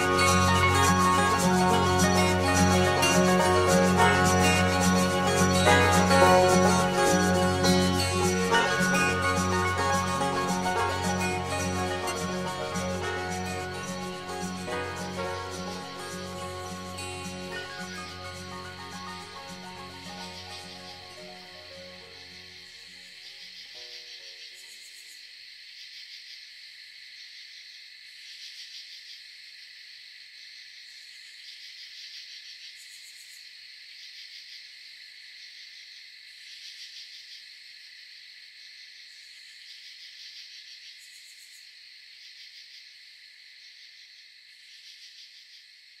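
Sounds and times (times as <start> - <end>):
instrumental music: 0.0 - 22.5
crickets and insects chirping: 0.0 - 46.0.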